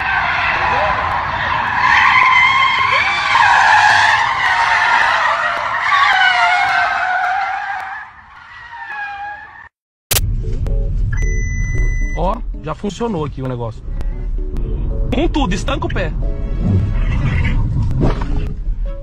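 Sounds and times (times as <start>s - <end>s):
car tyres squealing: 0.0s - 9.8s, 16.4s - 19.0s.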